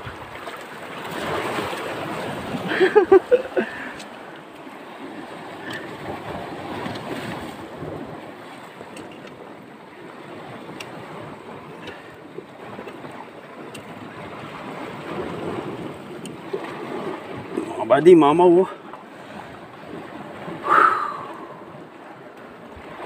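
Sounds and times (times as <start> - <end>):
surf over rocky shoreline: 0.0 - 23.0
wind buffeting microphone: 19.1 - 23.0.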